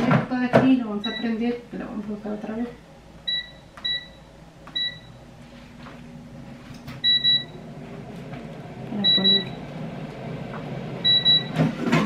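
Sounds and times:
control panel beeps: 0:01.0 - 0:01.4, 0:03.3 - 0:05.2, 0:07.0 - 0:07.6, 0:09.0 - 0:09.6, 0:11.0 - 0:11.6.

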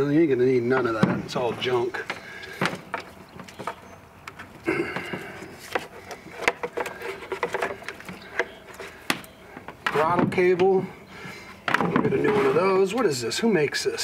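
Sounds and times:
rubber hoses and plastic fittings rattling: 0:00.8 - 0:10.9.

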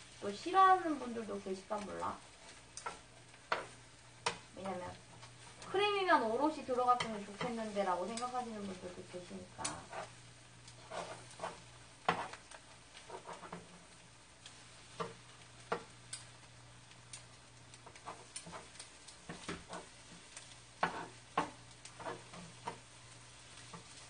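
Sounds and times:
batter sizzling: 0:00.0 - 0:24.0
metal spoon scraping and tapping: 0:02.8 - 0:04.4, 0:17.8 - 0:22.8.

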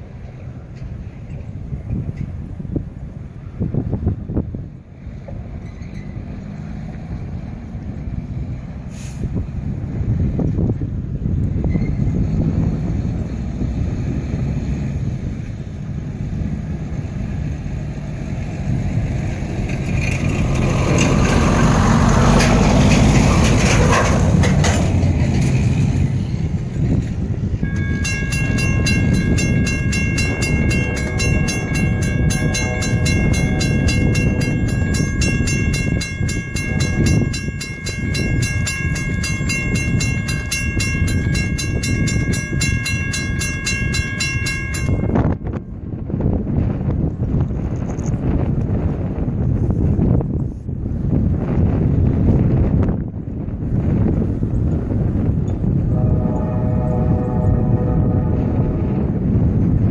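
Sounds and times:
rumble: 0:00.0 - 0:59.9
grade crossing bell ringing: 0:27.6 - 0:45.6.

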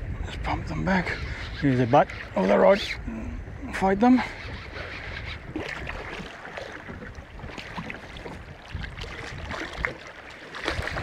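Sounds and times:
water lapping at boat: 0:04.2 - 0:11.0.

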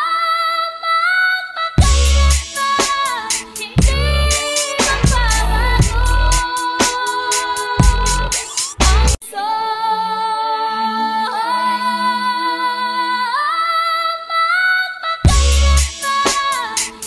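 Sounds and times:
bass-heavy beat: 0:01.8 - 0:03.0, 0:03.8 - 0:09.2, 0:15.3 - 0:16.1
beat-driven music track: 0:01.8 - 0:09.3, 0:15.3 - 0:17.0.

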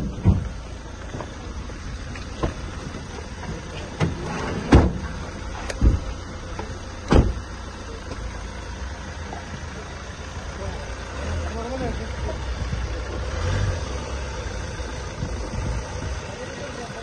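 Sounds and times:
van doors slamming: 0:00.0 - 0:00.6, 0:03.5 - 0:07.7
steady low rumble: 0:00.0 - 0:11.2, 0:11.8 - 0:17.0.

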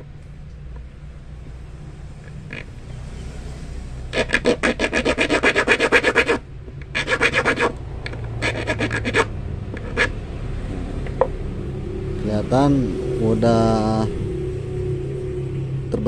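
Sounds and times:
file rasping on steel hook: 0:04.1 - 0:10.2.

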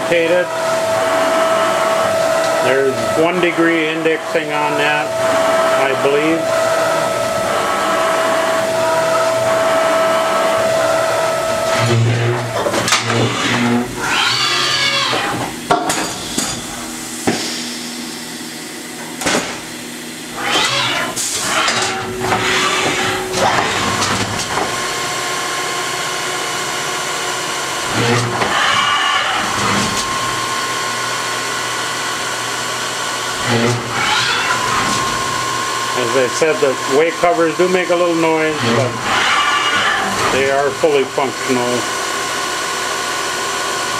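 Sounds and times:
machine steady hum: 0:00.0 - 0:43.9
way covers squealing: 0:00.2 - 0:15.4, 0:20.3 - 0:24.2, 0:33.4 - 0:35.3, 0:36.0 - 0:40.8.

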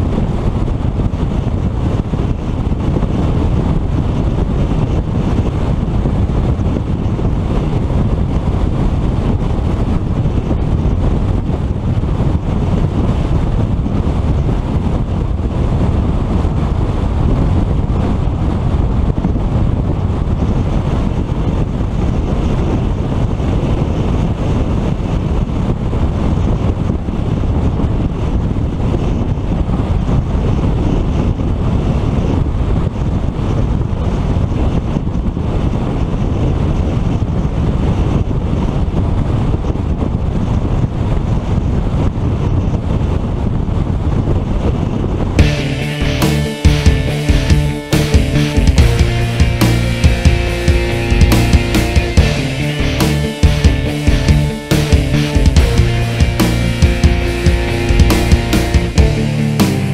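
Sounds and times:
wind rush over microphone: 0:00.0 - 0:45.5.

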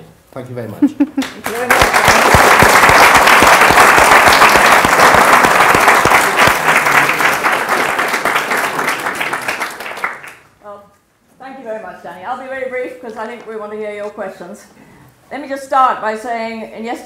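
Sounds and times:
audience applauding: 0:01.2 - 0:10.5.

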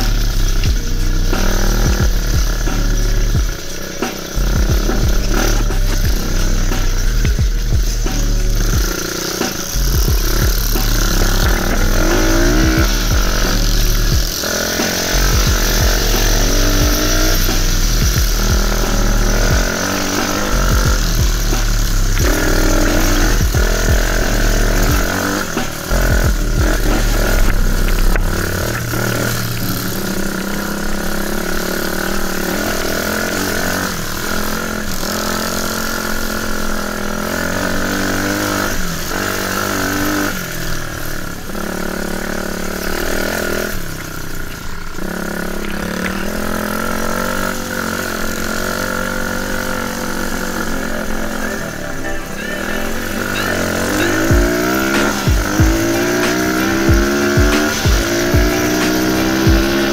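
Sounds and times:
heavy low rumble: 0:00.0 - 0:09.0, 0:09.7 - 0:30.7
dirt bike engine revving: 0:00.0 - 0:59.9.

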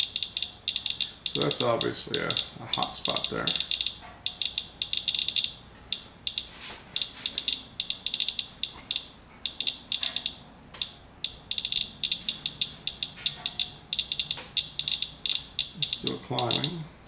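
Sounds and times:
geiger counter beeping: 0:00.0 - 0:16.9.

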